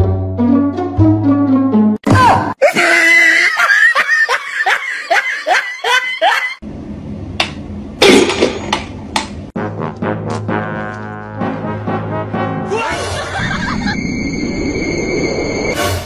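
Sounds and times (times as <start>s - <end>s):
high-pitched laughter: 2.6s - 6.6s, 12.9s - 14.0s.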